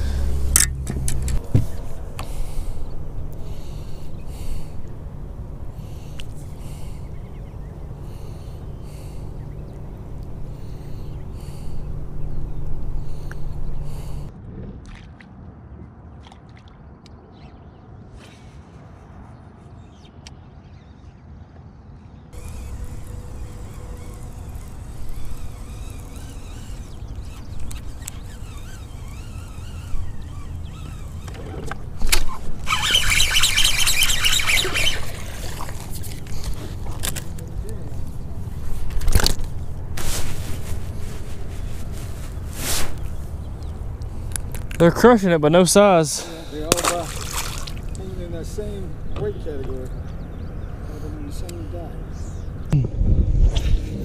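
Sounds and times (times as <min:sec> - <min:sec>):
steady low rumble: 0:00.0 - 0:16.1
fishing reel reeling: 0:22.4 - 0:38.0
wind rumbling on microphone: 0:47.2 - 0:54.0.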